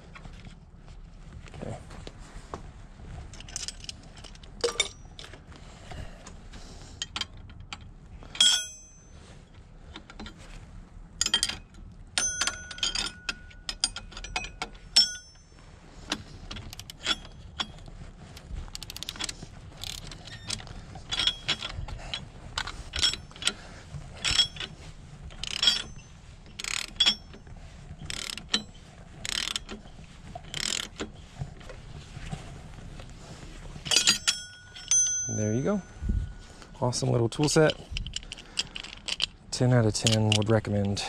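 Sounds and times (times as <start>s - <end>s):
sharp metal clanks: 8.4s - 9.2s, 11.2s - 15.5s, 33.9s - 37.8s
ratchet clicking: 18.8s - 21.8s, 25.4s - 27.4s, 28.0s - 29.8s, 30.5s - 31.0s.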